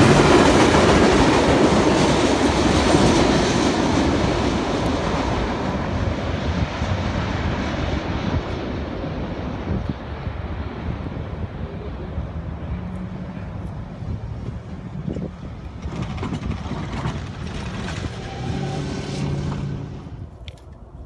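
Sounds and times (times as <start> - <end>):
vehicles driving past: 11.0 - 20.4.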